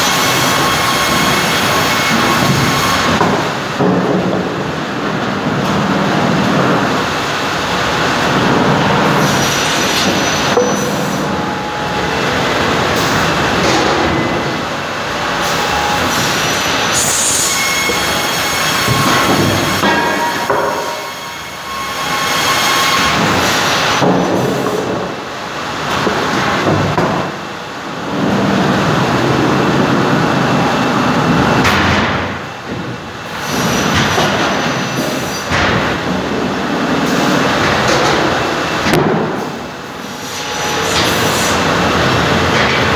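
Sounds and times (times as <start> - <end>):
boards clattering on roller conveyors: 0.0 - 42.9
high saw whine: 9.3 - 24.0.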